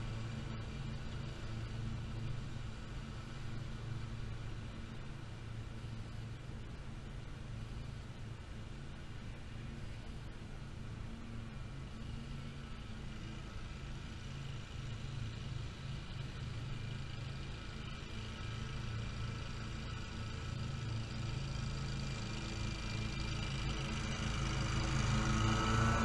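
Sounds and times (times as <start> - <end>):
mower engine running: 12.0 - 26.0.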